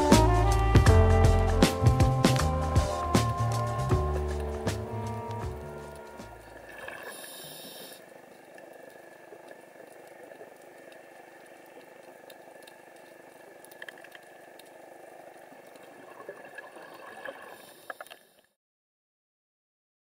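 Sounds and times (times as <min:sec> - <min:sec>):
steady watery hiss: 0:00.0 - 0:18.5
sharp underwater clicks: 0:05.9 - 0:18.4.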